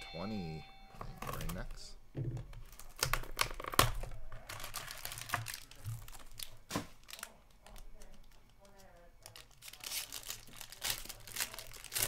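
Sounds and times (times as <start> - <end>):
wrapper and cardboard crinkling: 2.6 - 12.0.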